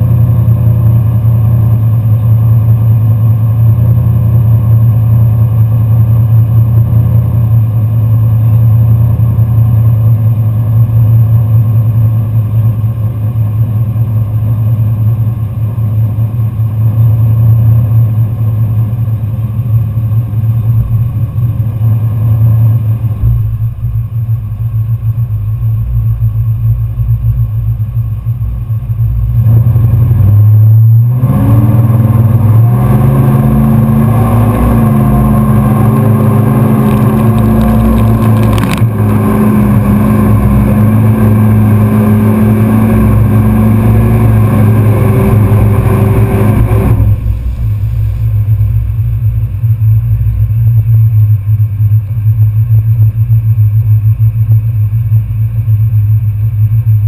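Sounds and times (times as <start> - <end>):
pickup truck engine idling and revving: 0.0 - 57.0
tires throwing mud: 31.2 - 50.4.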